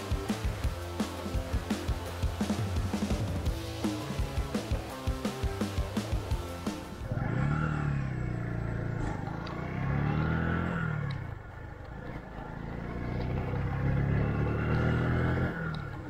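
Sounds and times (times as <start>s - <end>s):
vehicle engine revving: 0.0s - 16.0s.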